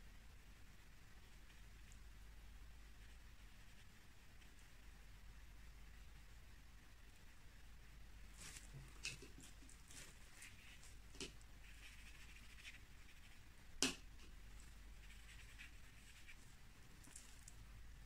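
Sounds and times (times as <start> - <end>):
brush stroking on paper: 8.2 - 13.5, 14.5 - 17.5
brush dabbing in plastic palette: 8.2 - 18.0.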